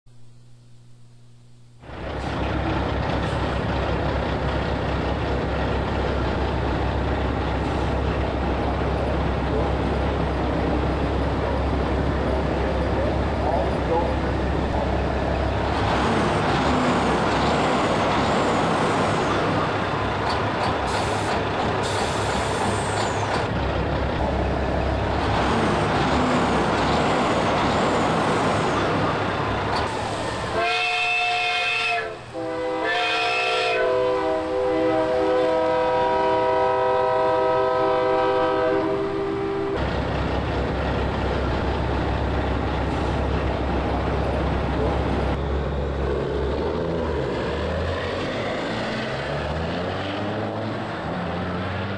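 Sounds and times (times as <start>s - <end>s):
heavy vehicle running: 1.8s - 31.2s, 34.3s - 51.9s
multi-tone air horn blasts: 30.5s - 39.8s.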